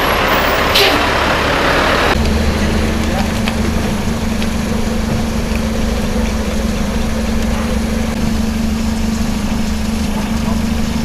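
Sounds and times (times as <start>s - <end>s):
car engine humming: 0.0s - 11.0s.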